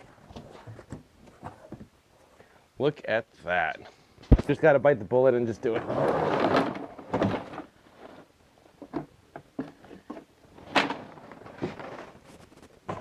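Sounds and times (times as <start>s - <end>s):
cardboard scraping and rustling: 5.6s - 13.0s.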